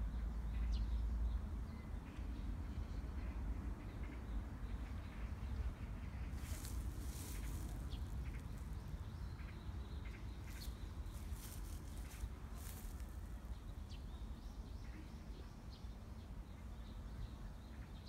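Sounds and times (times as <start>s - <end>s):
hissing rustles: 6.4s - 8.7s.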